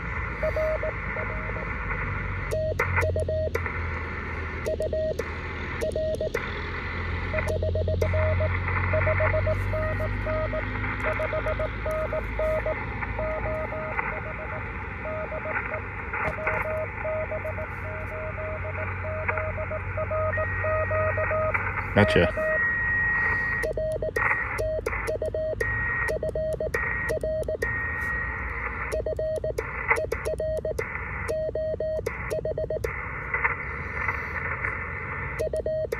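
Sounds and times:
radio band hiss: 0.0s - 11.0s, 11.7s - 20.0s, 21.5s - 25.1s, 32.0s - 35.9s
morse code tone: 0.4s - 1.6s, 5.8s - 6.4s, 7.3s - 28.3s, 28.9s - 32.9s.

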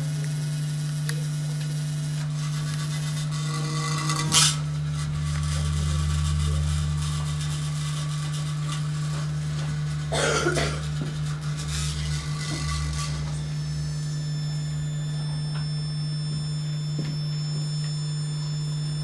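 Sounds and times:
electric hum: 0.0s - 19.0s
rasping scrape: 2.2s - 14.0s
low drone: 2.4s - 19.0s.

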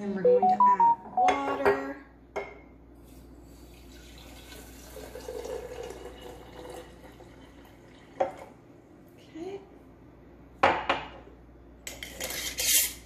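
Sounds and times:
water pouring into jar: 3.7s - 8.2s.

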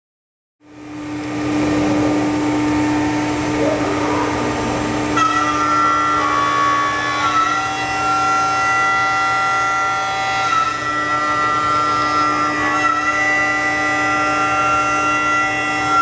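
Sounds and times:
router spindle whining: 0.7s - 16.0s
high-pitched cutting tones: 3.4s - 7.6s.

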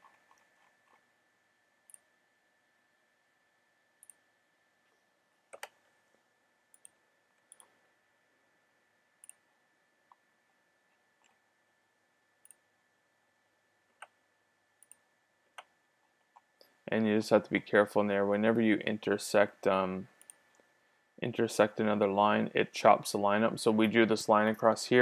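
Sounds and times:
faint steady whine: 0.0s - 25.0s
computer mouse clicks: 4.0s - 4.2s, 4.9s - 5.8s, 6.7s - 7.8s, 9.2s - 9.4s, 14.8s - 15.7s, 20.2s - 20.6s.

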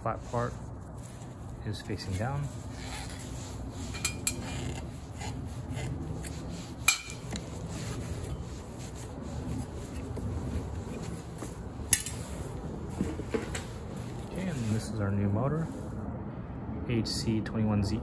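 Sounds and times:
rag wiping sheet metal: 1.9s - 12.5s.

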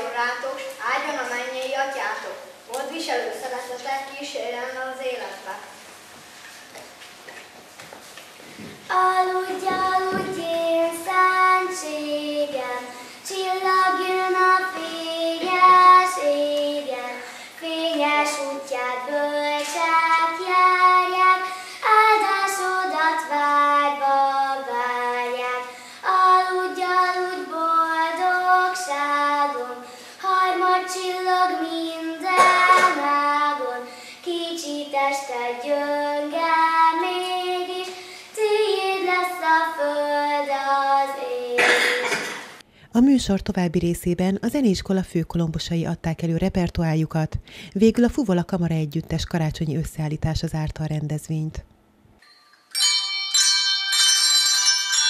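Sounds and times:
girl singing: 8.8s - 42.2s.

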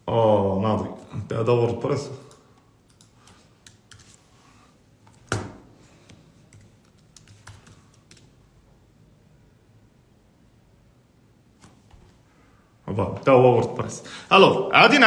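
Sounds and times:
computer keyboard typing: 2.2s - 4.2s, 6.5s - 8.4s.

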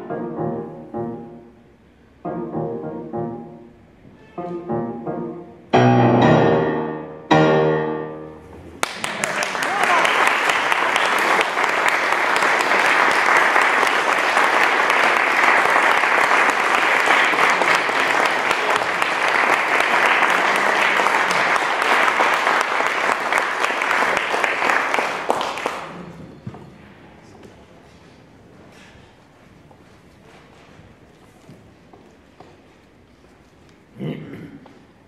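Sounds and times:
audience applauding: 8.8s - 26.1s.

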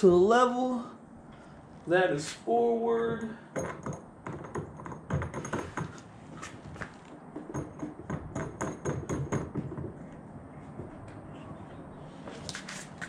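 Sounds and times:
clicking and tapping of hard parts: 3.1s - 10.2s.

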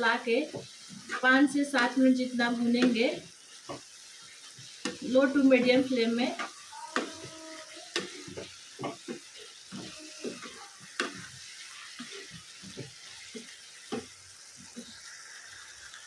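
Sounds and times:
vegetables sizzling in a pan: 0.0s - 16.0s
wooden spatula scraping vegetables: 0.4s - 1.6s, 2.6s - 14.9s
spatula knocking against pan: 6.4s - 7.3s, 7.9s - 11.3s.

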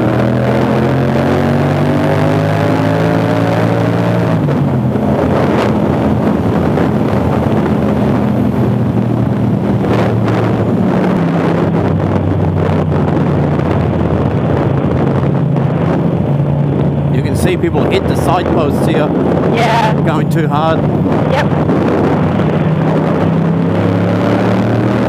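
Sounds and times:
wind noise on microphone: 0.0s - 25.0s.

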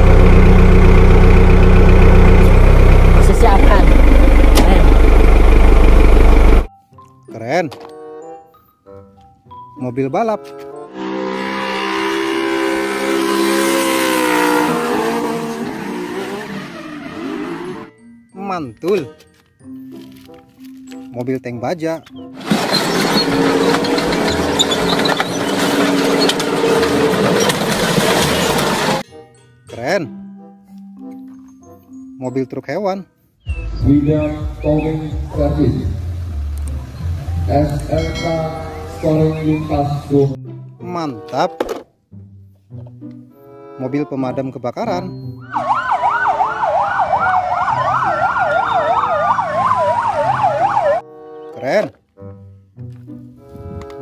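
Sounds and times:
tank engine running: 0.0s - 6.7s, 22.4s - 29.0s, 33.5s - 40.1s
tank tracks clanking: 22.0s - 29.0s
metal crunching: 22.1s - 29.0s
fire engine sirens yelp and wail: 22.4s - 29.0s, 45.4s - 51.1s.

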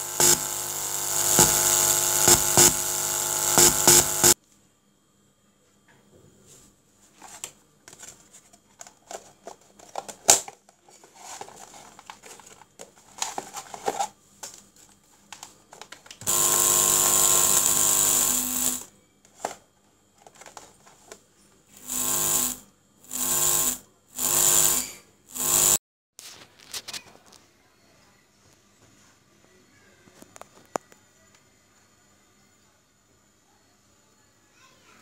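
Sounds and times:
small electric motor buzzing: 0.0s - 4.4s, 16.2s - 18.9s, 21.7s - 25.8s.

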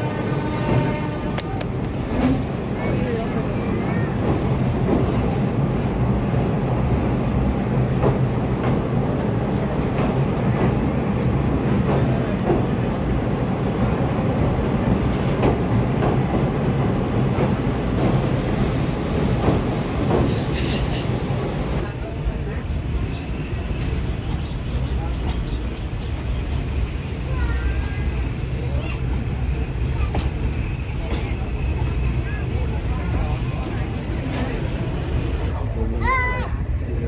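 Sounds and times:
train rumbling on rails: 0.0s - 37.0s
wheels clacking over rail joints: 13.8s - 26.8s.

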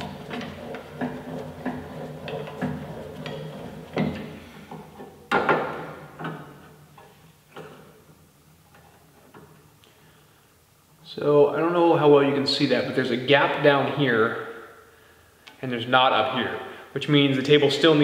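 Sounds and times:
metal clicks and knocks: 0.0s - 8.1s.

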